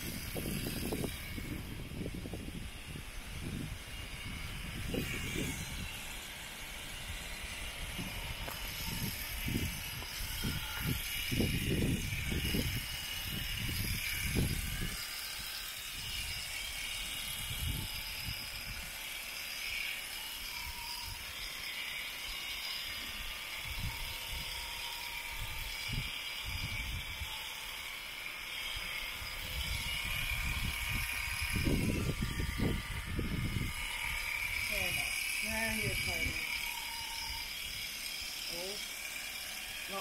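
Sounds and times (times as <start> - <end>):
electric shears whirring: 0.0 - 40.0.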